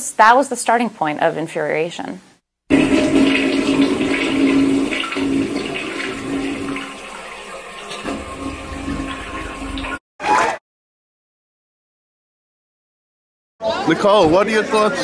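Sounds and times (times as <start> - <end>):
rushing water: 2.7 - 10.0.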